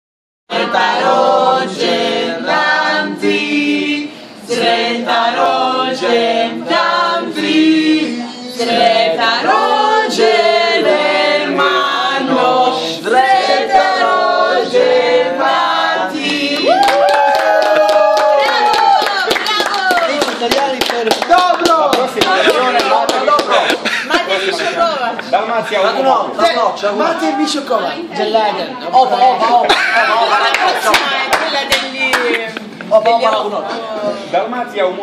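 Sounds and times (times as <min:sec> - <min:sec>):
group singing unaccompanied: 0:00.5 - 0:16.8
hand claps: 0:16.8 - 0:23.6.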